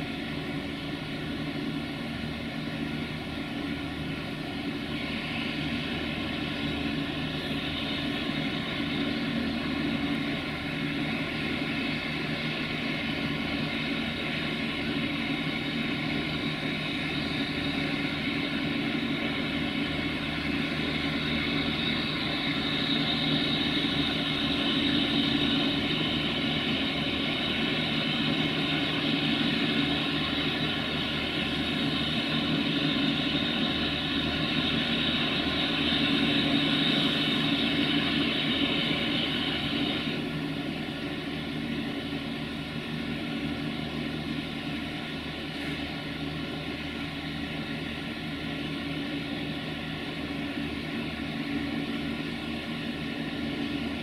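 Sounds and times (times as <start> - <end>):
steam locomotive blowing off steam: 4.8 - 40.5.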